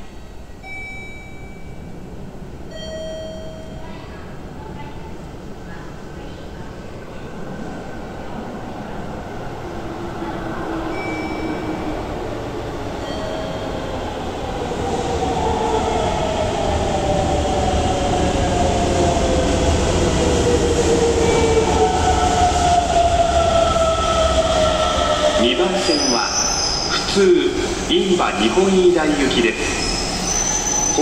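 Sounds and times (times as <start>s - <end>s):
train running noise: 9.5s - 31.0s.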